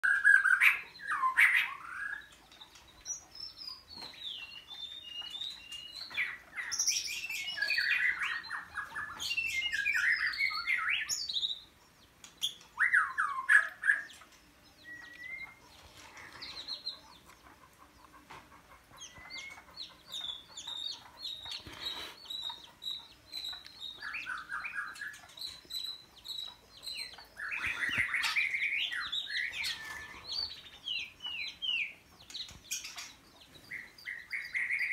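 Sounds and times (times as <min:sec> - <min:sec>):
bird whistled song: 0:00.0 - 0:02.3, 0:03.1 - 0:11.7, 0:12.3 - 0:14.2, 0:14.8 - 0:15.6, 0:19.0 - 0:34.9.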